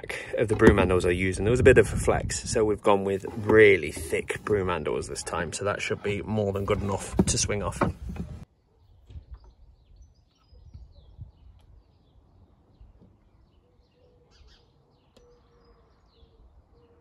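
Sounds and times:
birds chirping: 0:08.6 - 0:17.0.

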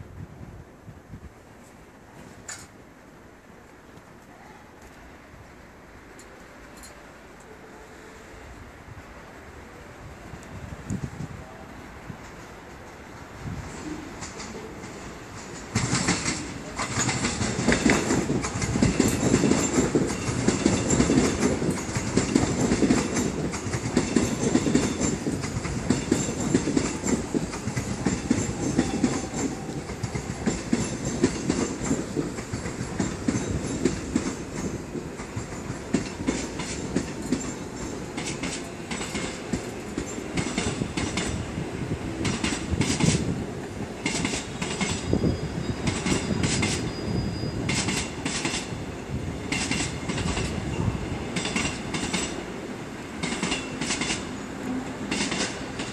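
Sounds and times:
train wheels clattering on rails: 0:12.1 - 0:55.9.

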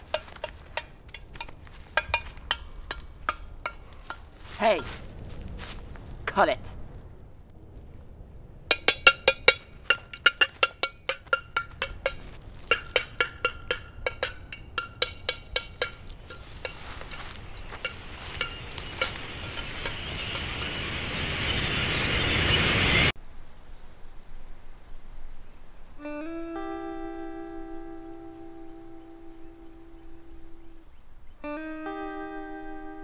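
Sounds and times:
sharp clinking ticks: 0:00.0 - 0:04.3, 0:08.7 - 0:21.2
rushing noise: 0:07.7 - 0:23.3.

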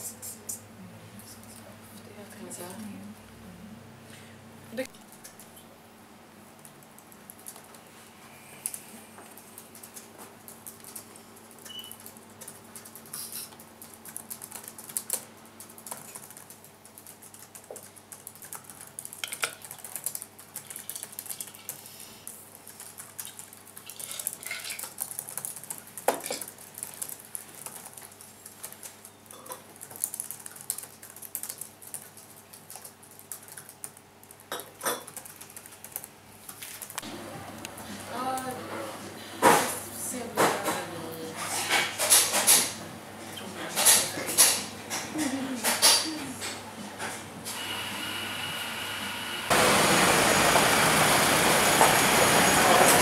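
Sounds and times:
laptop keyboard typing: 0:06.5 - 0:07.8, 0:08.6 - 0:21.8, 0:22.5 - 0:37.1.

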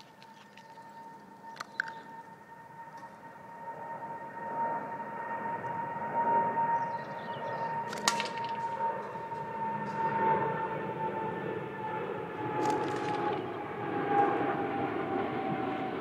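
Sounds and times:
steady high whine: 0:00.0 - 0:16.0
catapult shot crack: 0:07.9 - 0:08.8.

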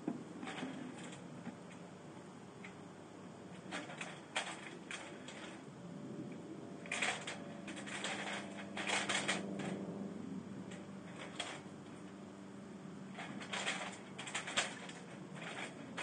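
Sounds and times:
squirrel rattling wire cage: 0:03.6 - 0:05.6, 0:06.8 - 0:09.9, 0:10.7 - 0:11.7, 0:13.1 - 0:16.0.

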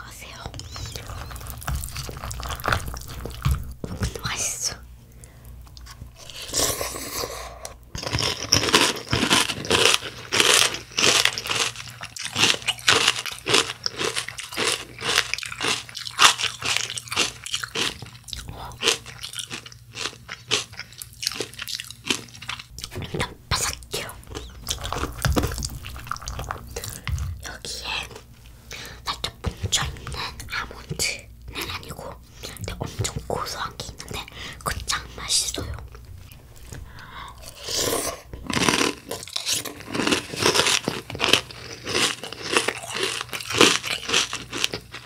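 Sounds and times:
chewing crunchy cereal: 0:00.3 - 0:45.0.

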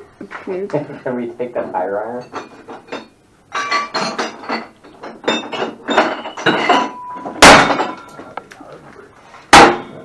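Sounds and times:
metal tools clattering in a bin: 0:02.2 - 0:08.3.

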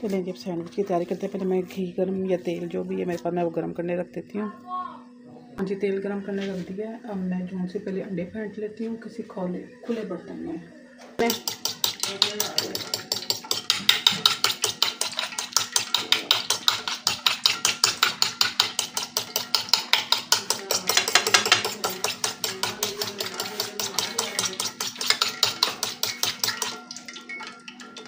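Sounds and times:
whisk clicking against dish: 0:11.2 - 0:28.0.

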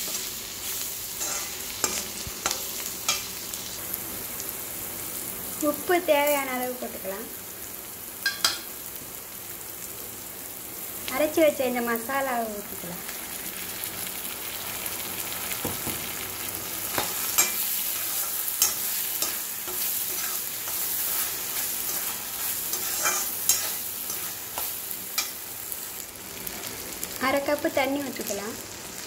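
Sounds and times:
paste sizzling in oil: 0:00.0 - 0:29.0
metal spoon scraping pan: 0:01.2 - 0:03.3, 0:16.9 - 0:25.4.

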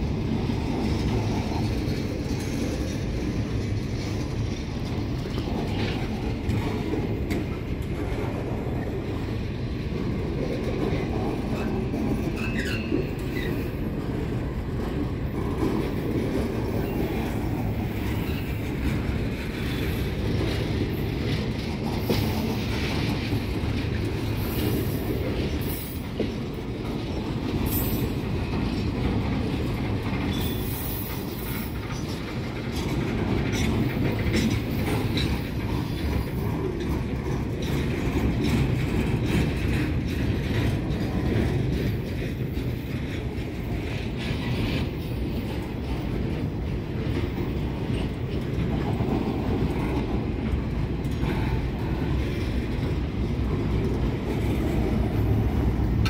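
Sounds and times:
train wheels rumbling and clattering: 0:00.0 - 0:56.0
high-pitched wheel squeals: 0:12.4 - 0:13.6.

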